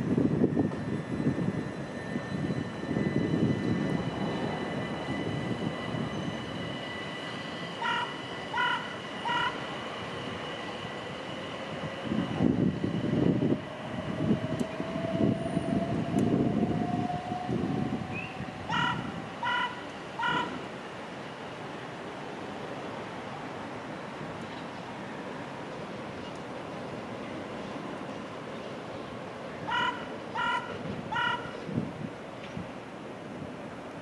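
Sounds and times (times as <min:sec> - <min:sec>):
train motor whine: 0:00.0 - 0:20.7
train warning beeps: 0:00.0 - 0:21.4, 0:29.6 - 0:31.6
train wheel rumble: 0:00.0 - 0:34.0.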